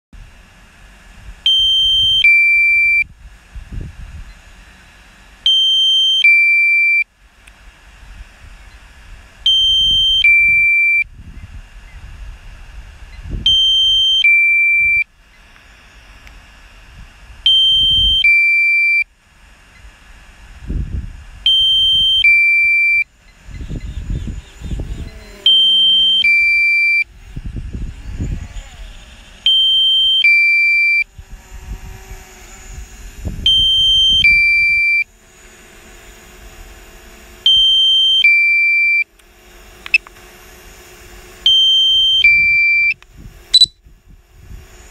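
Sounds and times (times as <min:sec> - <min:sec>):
two-tone electronic alarm beep: 0:01.5 - 0:03.1, 0:05.5 - 0:07.1, 0:09.5 - 0:11.1, 0:13.5 - 0:15.1, 0:17.5 - 0:19.1, 0:21.5 - 0:23.1, 0:25.5 - 0:27.1, 0:29.5 - 0:31.1, 0:33.5 - 0:35.1, 0:37.5 - 0:39.1, 0:41.5 - 0:43.0, 0:43.6 - 0:43.8
wind rumble on microphone: 0:02.8 - 0:04.7, 0:08.0 - 0:14.0, 0:16.7 - 0:18.3, 0:20.3 - 0:22.1, 0:23.3 - 0:26.0, 0:27.1 - 0:29.4, 0:31.1 - 0:34.9, 0:42.1 - 0:44.9.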